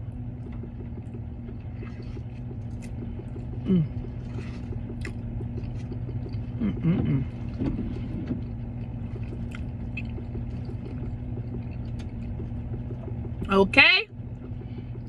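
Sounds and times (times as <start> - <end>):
car engine idling: 0.0 - 15.0
person humming: 3.6 - 4.1, 6.6 - 7.4.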